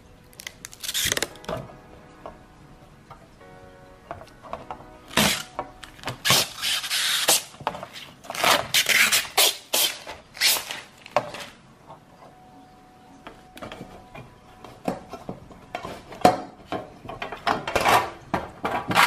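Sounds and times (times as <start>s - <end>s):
plastic film crackling: 0.2s - 1.6s, 5.0s - 11.6s.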